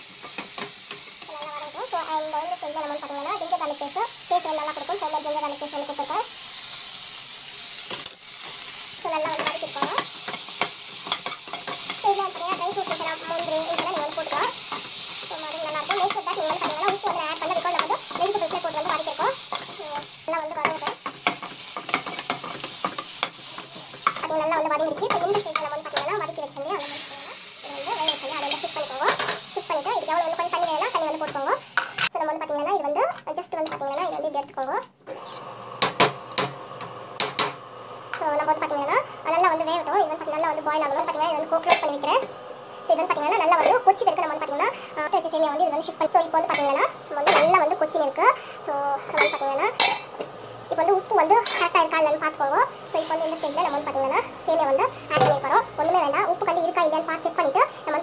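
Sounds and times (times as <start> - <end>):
frying hiss in oil: 0.0 - 32.1, 33.5 - 58.0
metal spatula scraping pan: 9.2 - 19.8.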